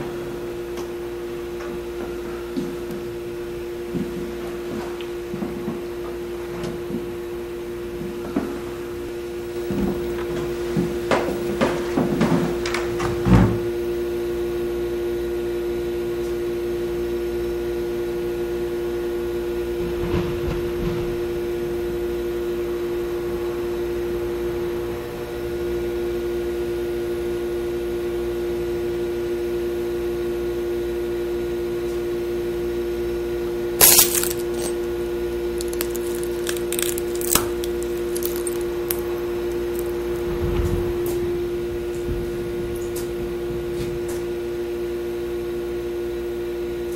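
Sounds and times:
sharp crack: 33.8 - 34.8, 35.6 - 40.0
low suspense drone: 33.8 - 46.1.

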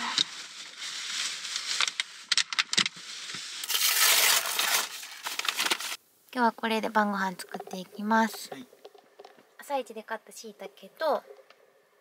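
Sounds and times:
grocery bags rustling and crinkling: 0.0 - 2.3, 3.0 - 6.0.

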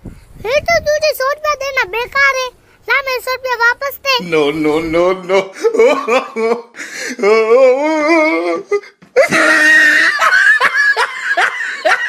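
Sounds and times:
loud laughter: 5.2 - 8.1, 9.2 - 12.0
person wailing: 7.2 - 10.3.

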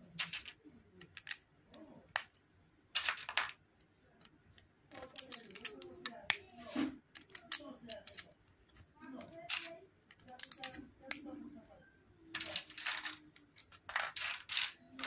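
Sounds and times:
plastic bricks clicking together: 0.2 - 1.4, 4.2 - 6.4, 7.1 - 8.4, 9.3 - 11.3, 12.3 - 15.0.

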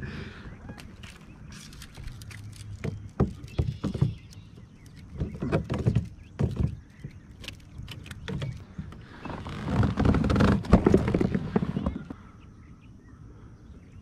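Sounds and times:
taps and thumps on plastic kayak: 2.5 - 9.0, 9.7 - 12.2.

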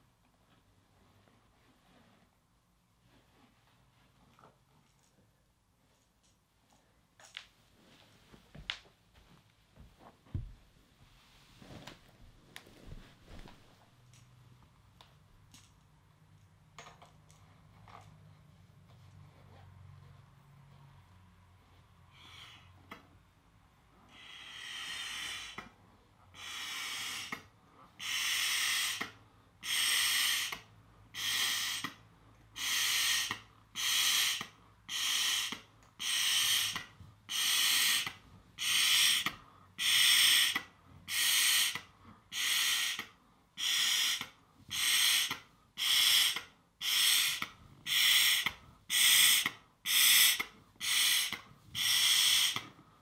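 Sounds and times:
breaths blowing up balloon: 24.1 - 25.8, 26.4 - 32.0, 32.6 - 53.0.

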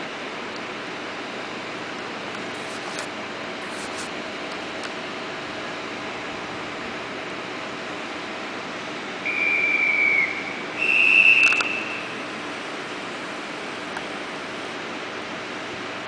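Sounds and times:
station hum: 0.0 - 16.0
hand whistle blasts: 9.2 - 12.2
sharp clicks: 11.4 - 11.8.

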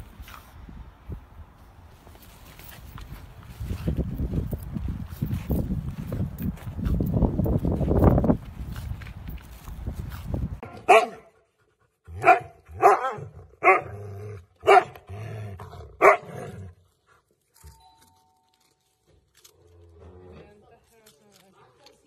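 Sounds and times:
husky barking: 10.6 - 11.4, 12.1 - 15.1, 15.9 - 16.6.

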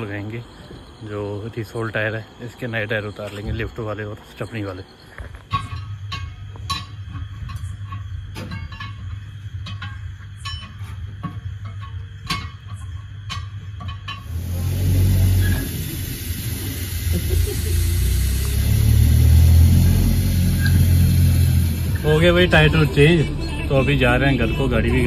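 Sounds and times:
metallic clanks of tools: 5.4 - 15.8
loud hiss and low rumble: 5.7 - 25.0.

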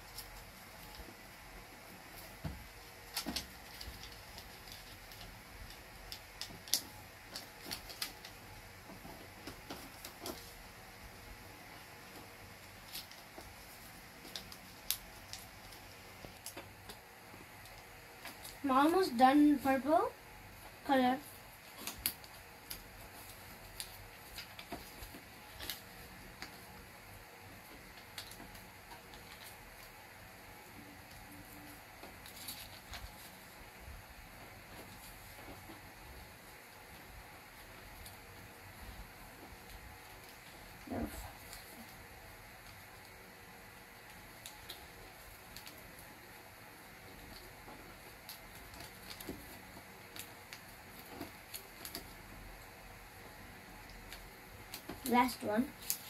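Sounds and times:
faint steady hiss: 0.0 - 56.0
sharp paper clicks: 3.0 - 8.6.

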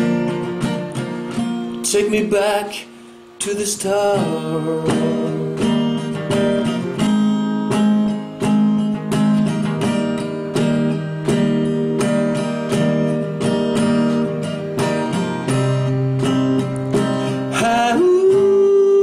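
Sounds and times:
acoustic guitar strumming chords: 0.0 - 19.0.

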